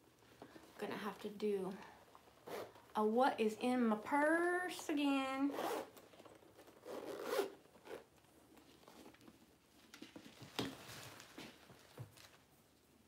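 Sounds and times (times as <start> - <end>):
handbags rustling: 1.7 - 2.9, 5.5 - 12.5.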